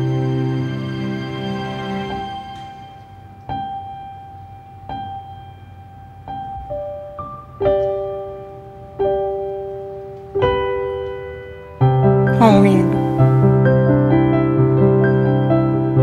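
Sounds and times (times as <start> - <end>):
slow solo piano: 2.1 - 16.0.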